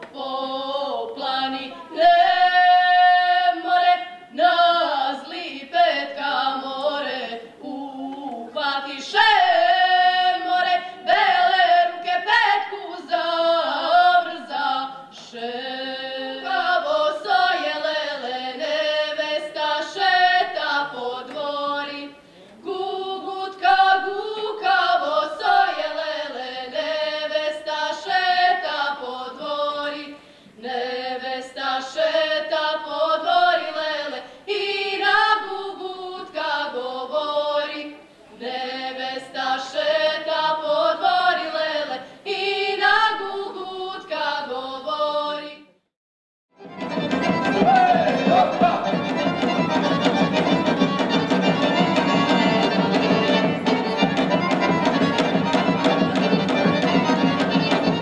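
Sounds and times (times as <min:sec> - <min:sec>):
group singing a cappella: 0:00.0 - 0:45.8.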